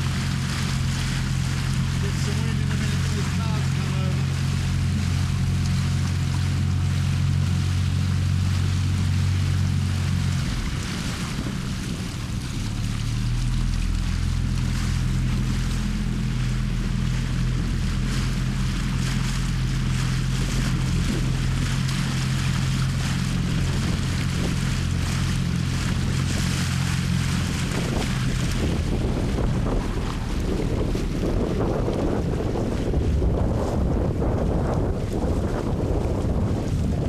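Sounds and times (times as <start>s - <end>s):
motorboat engine running: 0.0s - 37.0s
water rushing: 0.0s - 37.0s
wind noise: 15.3s - 37.0s.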